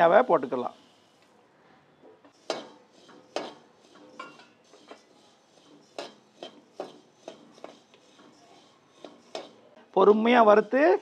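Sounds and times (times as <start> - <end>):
metal spatula scraping a pan: 2.3 - 9.8.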